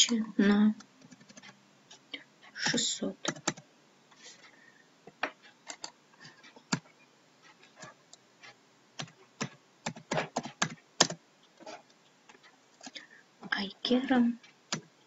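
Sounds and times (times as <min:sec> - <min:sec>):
keyboard typing: 0:00.0 - 0:01.6, 0:02.6 - 0:03.7, 0:05.2 - 0:13.0, 0:14.7 - 0:14.9.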